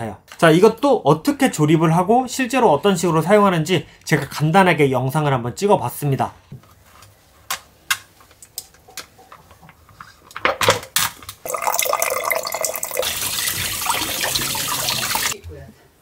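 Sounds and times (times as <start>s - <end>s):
kitchen tap running: 11.4s - 15.4s
water splashing: 11.5s - 15.4s.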